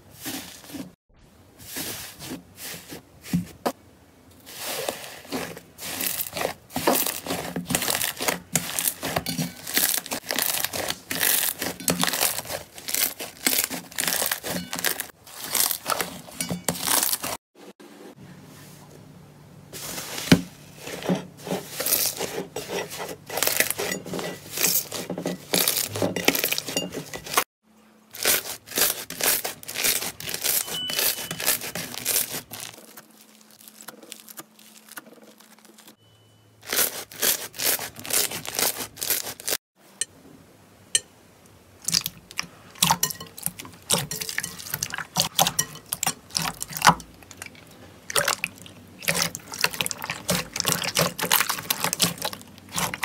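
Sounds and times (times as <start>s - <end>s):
slime squishing: 4.4s - 17.4s, 28.1s - 36.0s, 41.8s - 53.0s.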